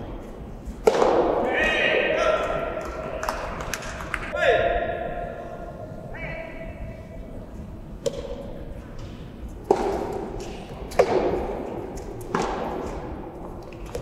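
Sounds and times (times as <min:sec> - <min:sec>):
racket hitting tennis ball: 0:00.0 - 0:02.0, 0:08.0 - 0:14.0.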